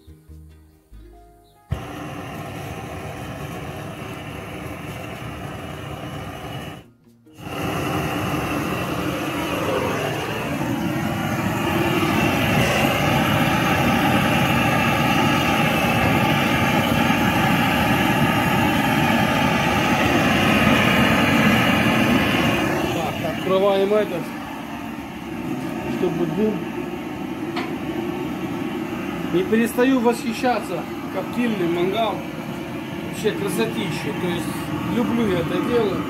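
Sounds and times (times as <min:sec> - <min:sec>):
gas torch hissing roar: 0:01.7 - 0:36.0.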